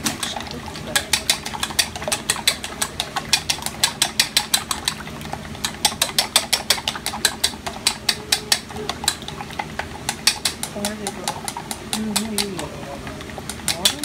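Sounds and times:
chopsticks clicking in metal bowl: 0.0 - 5.0, 5.6 - 12.7, 13.4 - 14.0.

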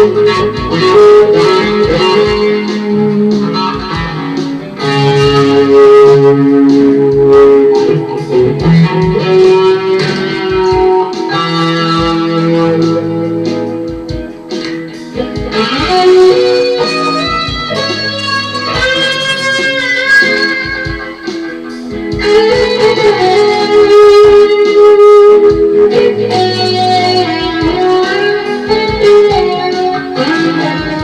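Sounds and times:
electric guitar lead line: 0.0 - 31.0.

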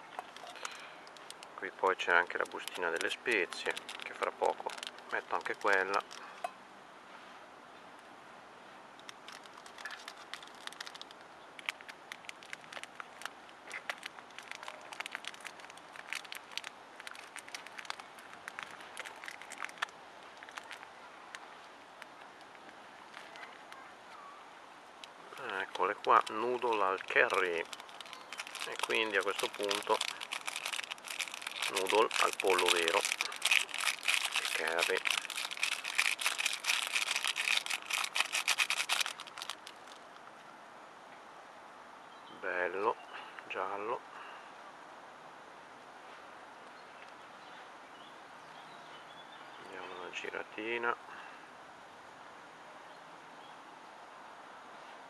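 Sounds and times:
pot crackling and ticking: 0.0 - 1.6, 2.2 - 6.6, 9.0 - 21.4, 25.0 - 40.1
sachet crinkling: 0.0 - 6.3, 9.0 - 20.9, 25.3 - 40.0
faint steady hiss: 0.0 - 55.0.

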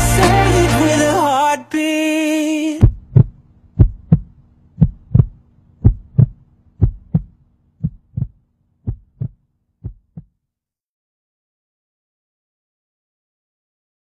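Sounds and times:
heartbeat double thumps: 2.8 - 10.3.

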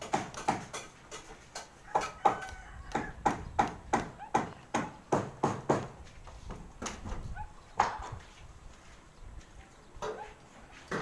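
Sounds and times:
hammer on metal roofing sheet: 0.0 - 7.2.

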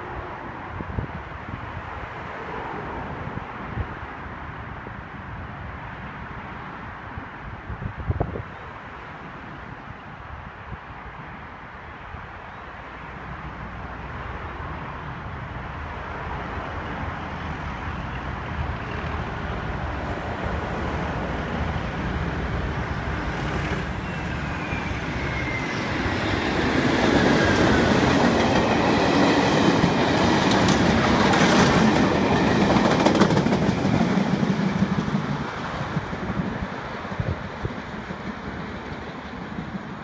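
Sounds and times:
diesel locomotive passing: 13.0 - 40.0
train wheels clicking over rail joints: 26.9 - 35.9.

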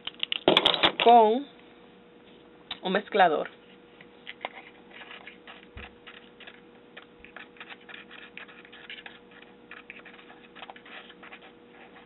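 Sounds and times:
plastic stick scratching in powder: 4.3 - 12.0.

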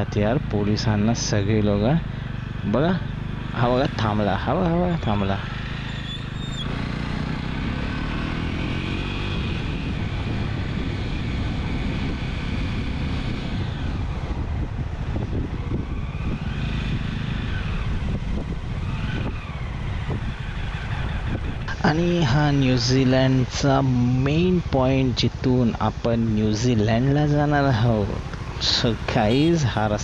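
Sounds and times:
motorcycle engine revving: 0.0 - 30.0
wind rumbling on microphone: 6.2 - 27.0.

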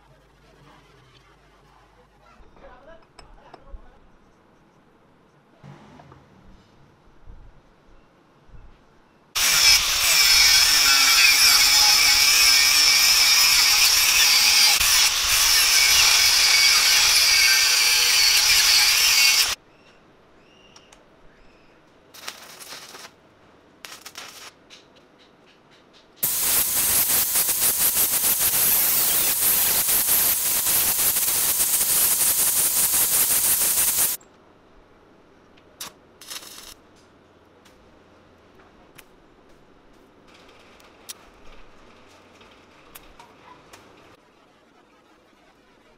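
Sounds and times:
angle grinder grinding steel: 9.4 - 19.6, 26.2 - 34.2.

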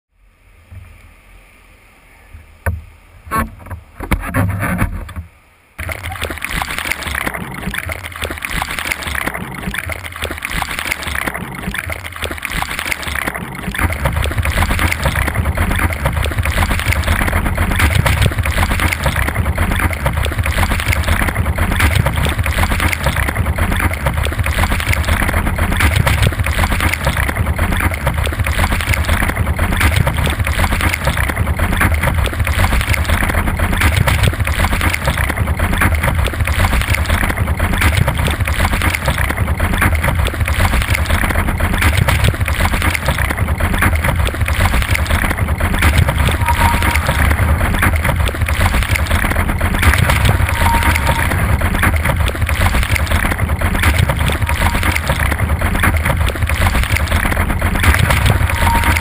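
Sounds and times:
surf water rushing and splashing: 5.8 - 59.0.

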